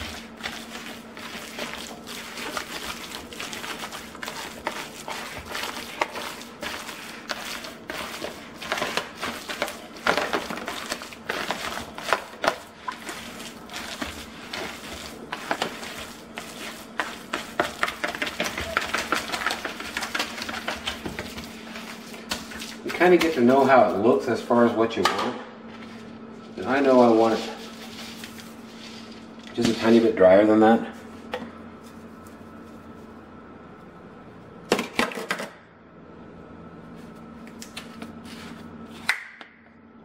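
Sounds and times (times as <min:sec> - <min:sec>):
hands squelching wet meat mix: 0:00.0 - 0:24.5.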